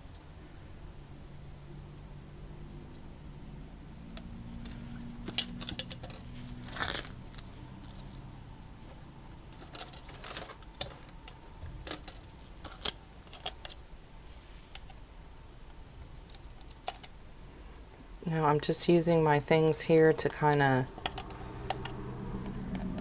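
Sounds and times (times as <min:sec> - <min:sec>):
plastic sheeting crinkling: 0:05.6 - 0:08.2.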